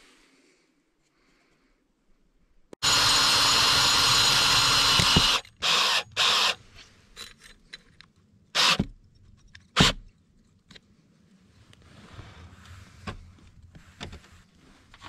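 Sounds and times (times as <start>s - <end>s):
cordless drill driving a screw: 2.8s - 6.6s, 8.6s - 8.9s.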